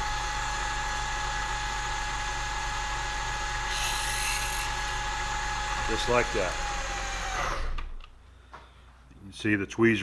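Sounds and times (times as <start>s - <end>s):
milling machine spindle whine: 3.4s - 7.4s
drill bit cutting brass: 3.6s - 7.3s.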